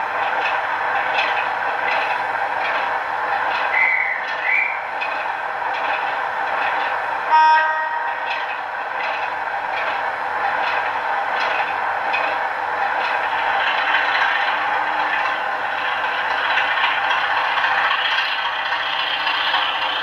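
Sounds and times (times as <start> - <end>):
train horn blast: 7.3 - 8.3.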